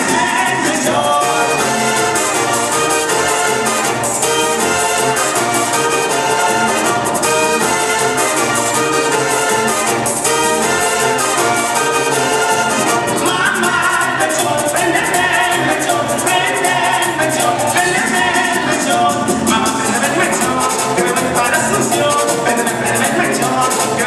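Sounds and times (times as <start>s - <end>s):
latin dance music with brass: 0.0s - 24.0s.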